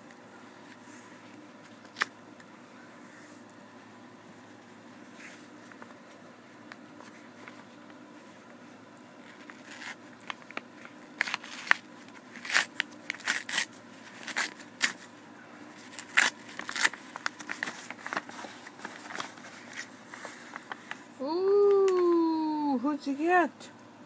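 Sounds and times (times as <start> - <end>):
paper envelope tearing: 9.2 - 15.1, 15.7 - 21.0.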